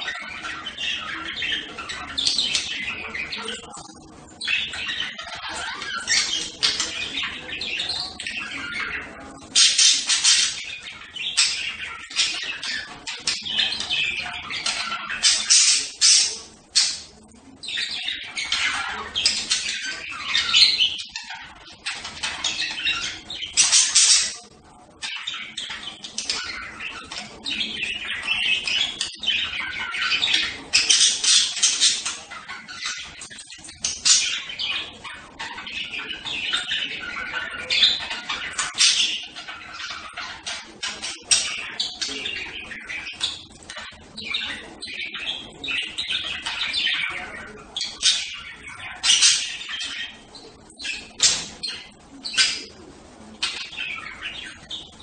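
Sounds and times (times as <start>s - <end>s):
budgerigars chattering: 0.0s - 55.0s.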